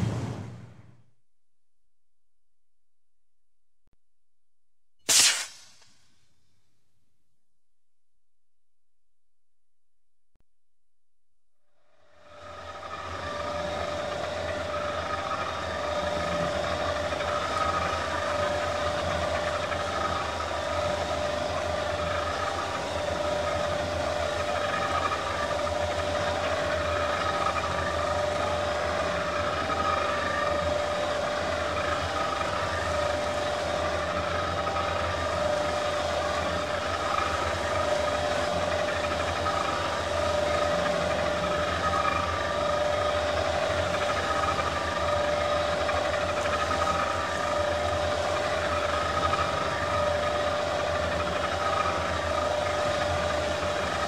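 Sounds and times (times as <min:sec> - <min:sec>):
steady hiss: 0:05.1 - 0:06.0
mechanical hum: 0:11.7 - 0:54.0.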